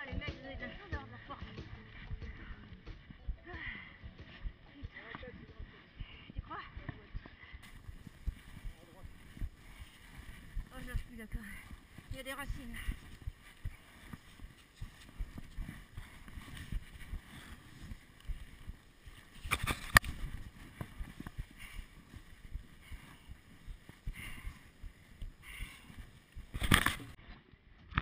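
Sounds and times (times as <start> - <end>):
gloved hands working a rope: 0.0 - 27.6
footsteps in mud: 7.0 - 27.2.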